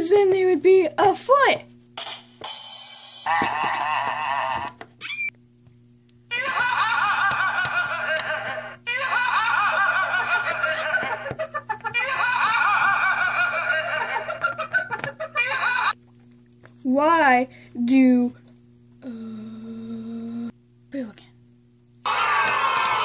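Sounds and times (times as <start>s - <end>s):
steady low hum: 0.0s - 23.0s
high-pitched laughter: 6.3s - 16.0s, 22.1s - 23.0s.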